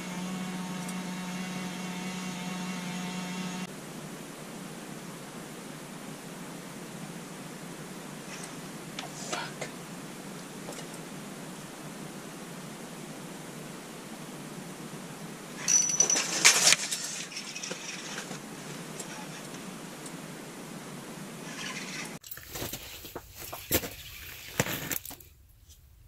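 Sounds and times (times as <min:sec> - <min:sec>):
steady hiss: 0:03.6 - 0:15.8.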